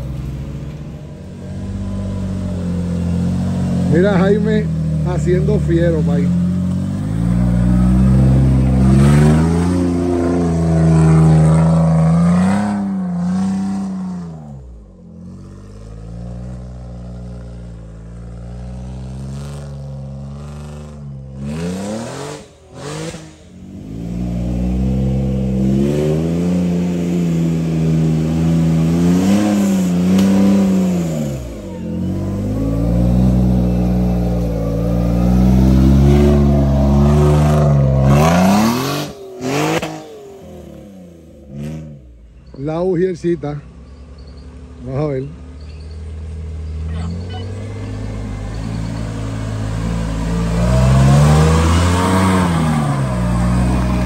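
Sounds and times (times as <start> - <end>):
engine revving hard: 7.0 - 14.5, 18.4 - 42.1, 47.0 - 54.0.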